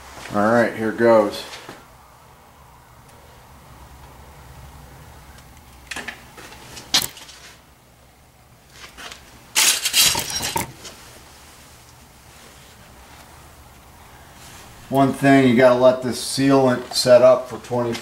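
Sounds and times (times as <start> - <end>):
metal pipe scraping: 9.6 - 11.0.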